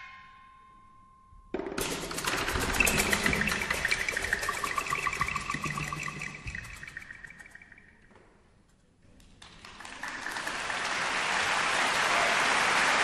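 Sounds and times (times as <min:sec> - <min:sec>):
audience applause: 0:09.4 - 0:13.0.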